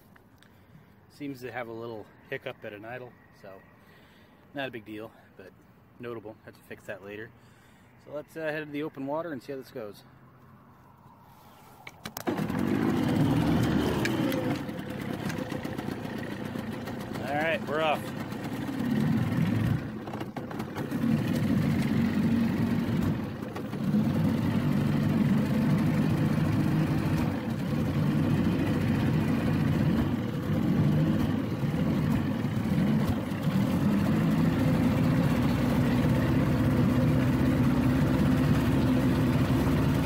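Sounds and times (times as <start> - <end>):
outboard motor running: 12.2 - 40.0.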